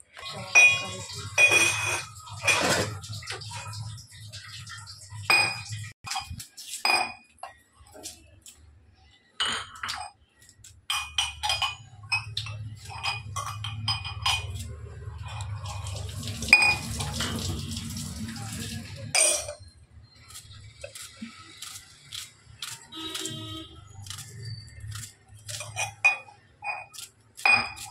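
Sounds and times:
steel utensils clinking: 0:00.1 - 0:07.1, 0:10.9 - 0:19.8, 0:22.2 - 0:27.9.

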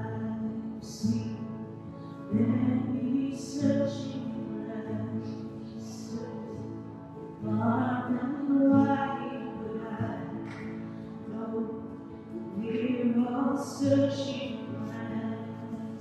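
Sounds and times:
acoustic guitar: 0:00.0 - 0:16.0
woman singing: 0:00.0 - 0:16.0.

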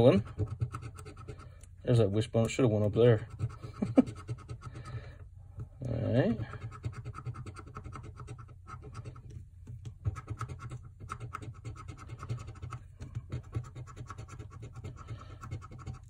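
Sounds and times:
coin scratching a lottery ticket: 0:00.0 - 0:01.6, 0:03.1 - 0:05.0, 0:06.0 - 0:09.3, 0:10.0 - 0:16.0.

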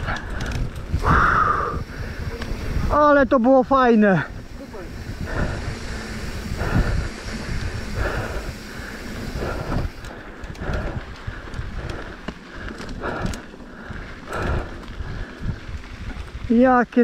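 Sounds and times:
person breathing heavily: 0:00.0 - 0:02.9, 0:04.2 - 0:15.8
wind rumbling on microphone: 0:00.0 - 0:17.0.

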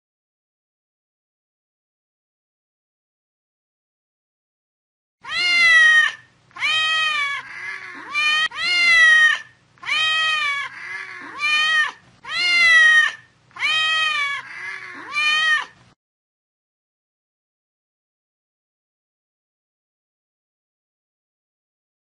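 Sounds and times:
cat meowing: 0:05.2 - 0:15.8.

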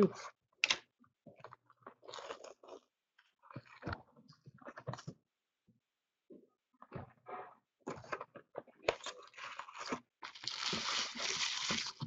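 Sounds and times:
plastic wrap crinkling: 0:10.2 - 0:12.0.

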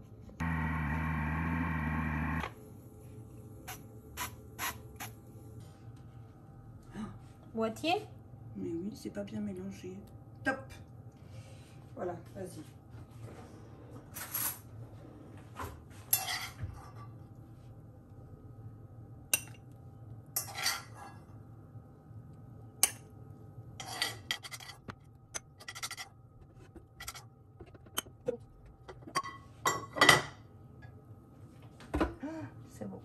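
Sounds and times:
metal scrapes and clinks: 0:23.8 - 0:24.8.

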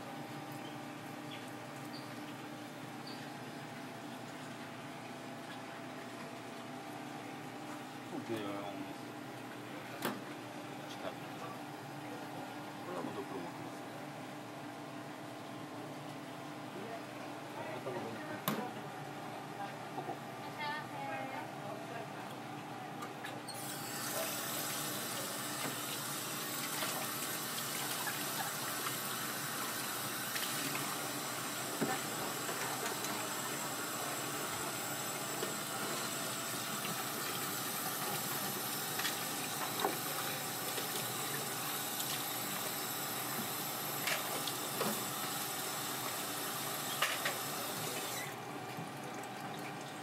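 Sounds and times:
tap water running into sink: 0:23.6 - 0:50.0.

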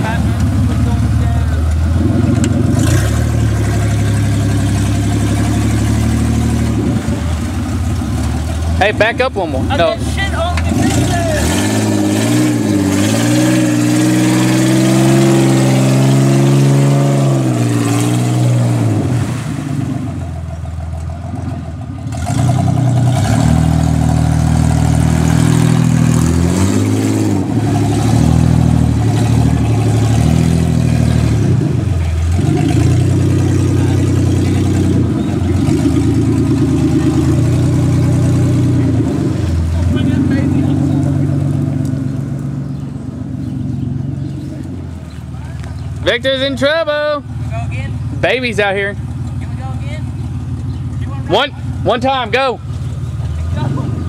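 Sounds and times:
engine revving: 0:00.0 - 0:54.0.

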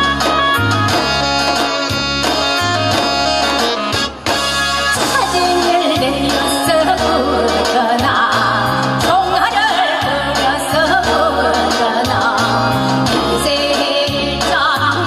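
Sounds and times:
instrumental backing track: 0:00.0 - 0:15.0
woman singing through a microphone: 0:05.0 - 0:15.0.

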